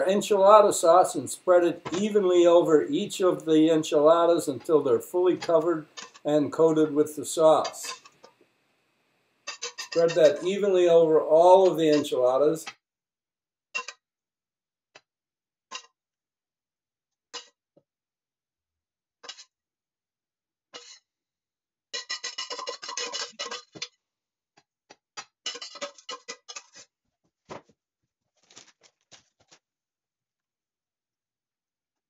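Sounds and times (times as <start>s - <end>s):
spoon scraping dish: 5.4s - 6.2s, 7.5s - 8.2s, 9.5s - 10.5s, 22.0s - 23.7s, 25.5s - 26.8s.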